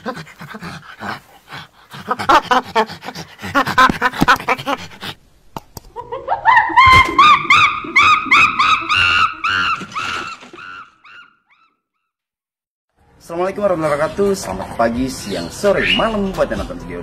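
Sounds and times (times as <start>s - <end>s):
chimpanzee hooting and screaming: 6.0s - 11.7s.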